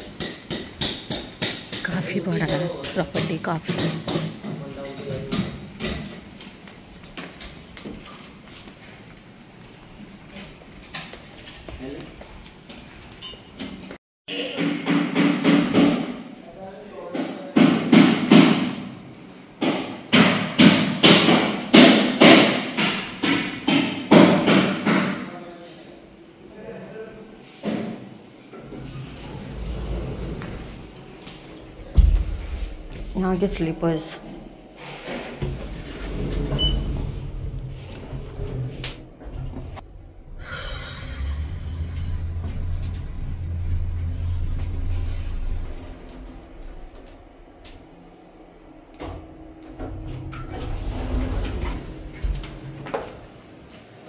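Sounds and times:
lift humming while moving: 35.6s - 54.0s.

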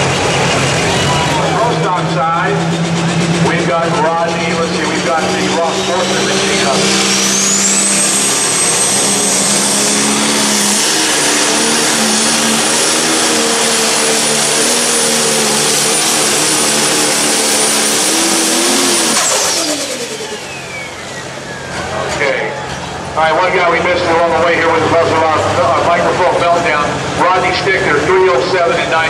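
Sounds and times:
turbo whine: 0.0s - 23.2s
diesel tractor engine at full power: 0.0s - 29.0s.

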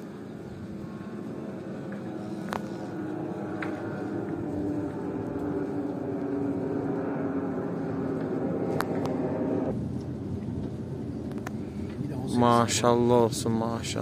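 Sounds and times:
engine humming: 0.0s - 14.0s.

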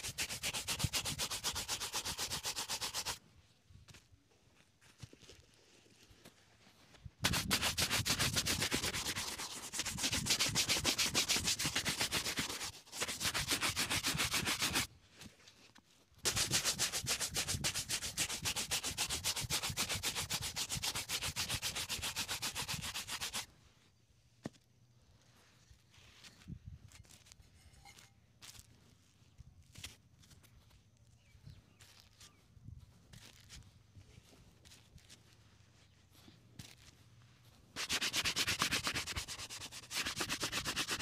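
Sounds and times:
shoe brush scrubbing leather boot: 0.0s - 3.2s, 7.2s - 14.9s, 16.3s - 23.5s, 37.7s - 41.0s.

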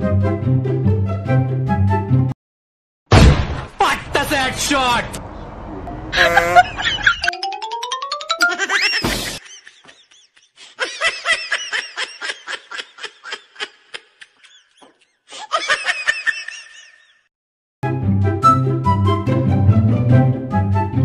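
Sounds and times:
person laughing: 6.1s - 7.4s, 8.2s - 17.2s.

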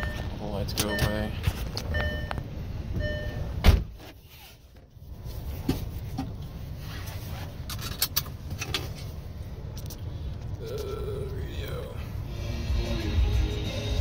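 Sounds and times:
loud thump: 3.6s - 4.0s.

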